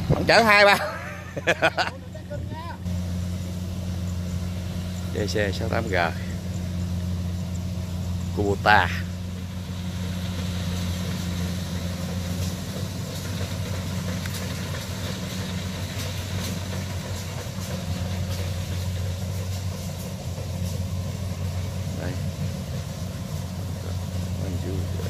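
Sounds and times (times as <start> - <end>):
combine harvester diesel engine: 0.0 - 25.0.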